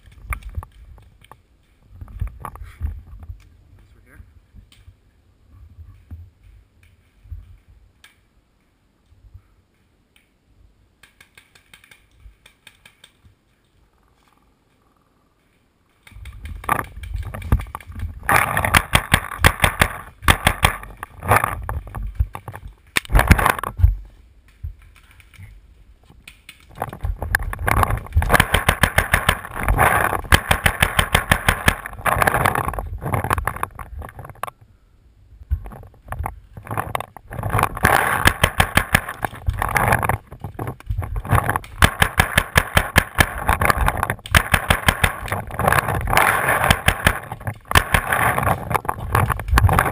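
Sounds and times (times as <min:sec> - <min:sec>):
paintball markers firing: 0:16.0 - 0:21.1, 0:27.6 - 0:32.6, 0:37.7 - 0:39.7, 0:41.3 - 0:48.6.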